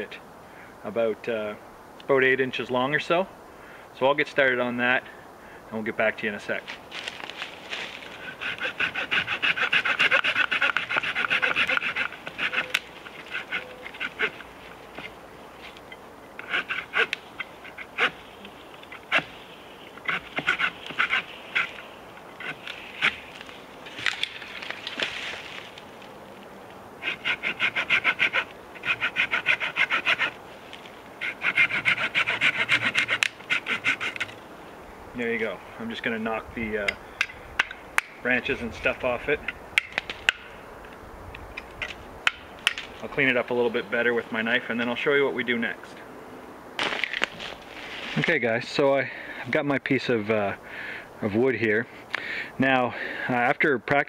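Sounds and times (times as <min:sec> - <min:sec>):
hand saw cutting wood: 0:08.2 - 0:15.1, 0:16.4 - 0:18.2, 0:18.9 - 0:19.3, 0:20.0 - 0:21.8, 0:22.4 - 0:23.2, 0:27.0 - 0:30.4, 0:31.2 - 0:34.4.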